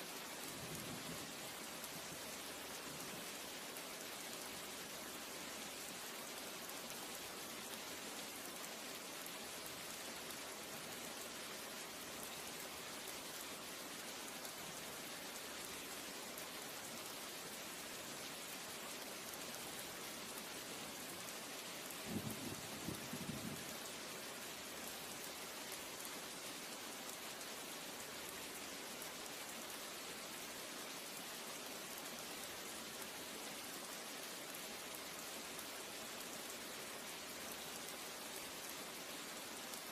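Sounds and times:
steady hiss: 0.0s - 39.9s.

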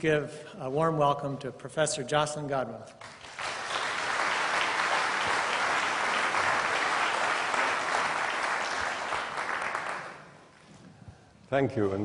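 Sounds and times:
audience applauding: 3.0s - 10.5s.

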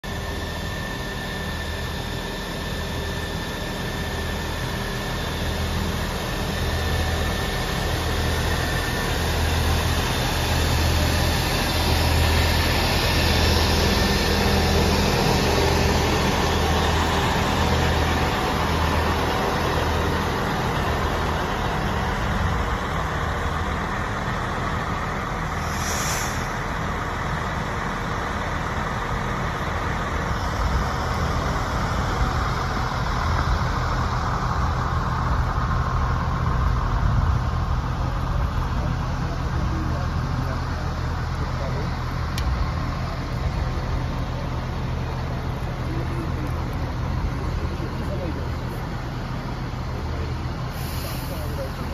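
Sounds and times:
diesel engine rumbling: 0.0s - 51.9s
brief hiss: 25.6s - 26.7s, 50.7s - 51.6s.

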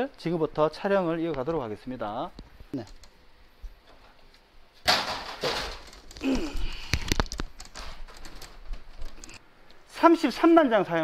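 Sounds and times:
person grunting: 6.2s - 6.9s.

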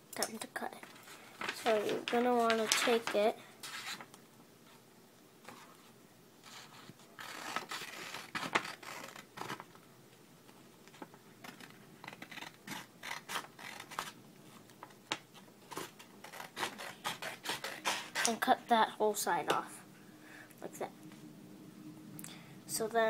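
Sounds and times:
paper rustling: 0.9s - 4.1s
scissors snipping paper: 15.7s - 18.4s.

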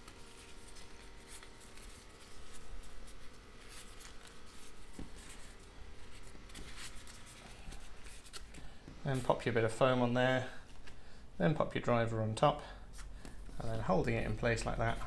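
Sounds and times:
ear pad rubbing and scratching: 0.0s - 10.0s.

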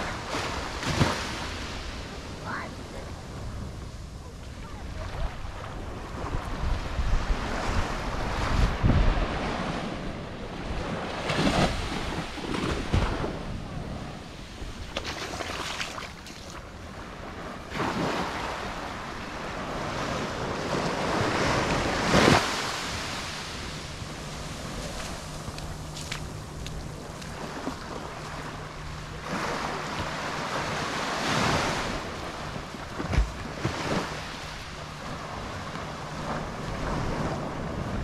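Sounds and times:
waves washing on sandy beach: 0.0s - 38.0s
wind buffeting the microphone: 2.3s - 30.6s.

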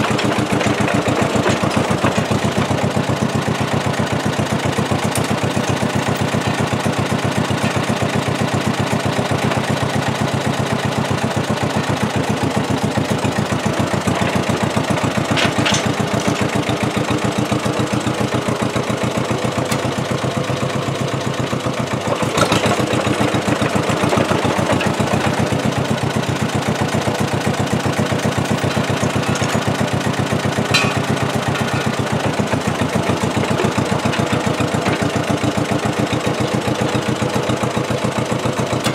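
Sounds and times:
bulldozer engine running: 0.0s - 38.9s.

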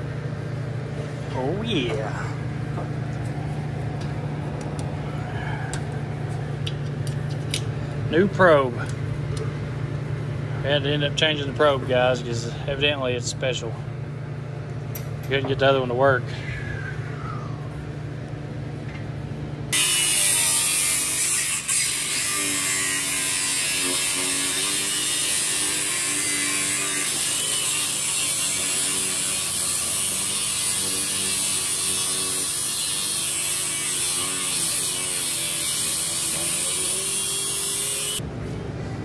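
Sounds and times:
loud steady mechanical noise: 0.0s - 39.0s
low hum: 16.1s - 19.7s.

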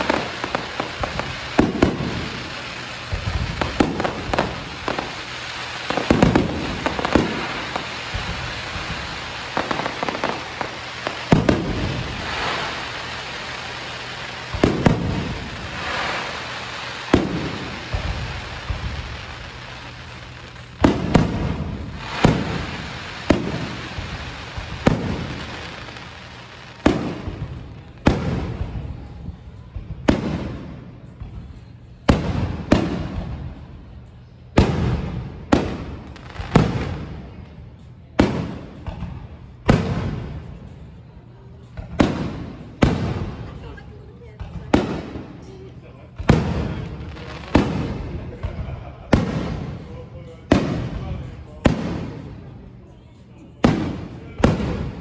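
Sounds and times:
hissing crackle: 0.0s - 29.1s
fireworks booming: 0.0s - 52.7s, 53.6s - 55.0s.

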